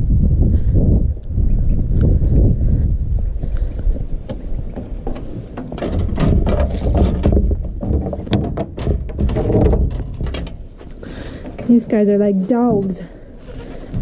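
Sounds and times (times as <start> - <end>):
wind rumble on microphone: 0.0 - 14.0
metal gate and fence rattling: 4.9 - 13.9.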